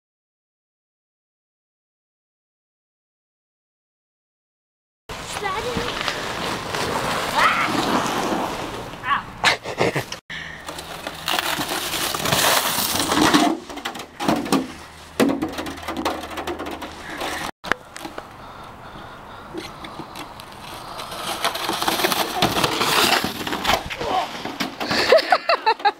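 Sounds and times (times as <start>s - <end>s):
snow crunching: 5.1s - 9.3s
sleds scraping over snow: 5.1s - 13.5s, 19.6s - 25.8s.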